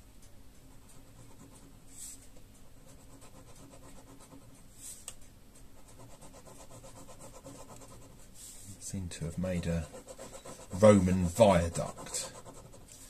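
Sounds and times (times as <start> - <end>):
pen scratching on paper: 0.7 - 2.2, 2.8 - 4.5, 5.8 - 8.5, 9.3 - 13.0.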